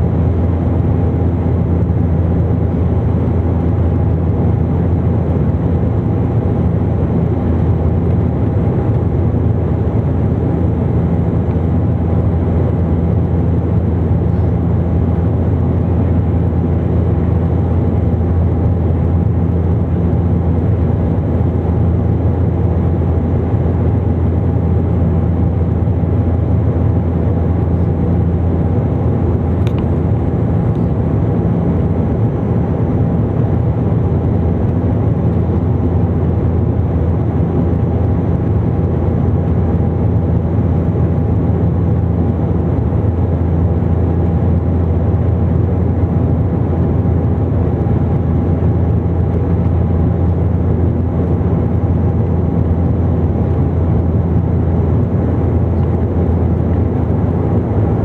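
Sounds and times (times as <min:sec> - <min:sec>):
turboprop cabin drone: 0:00.0 - 0:58.0.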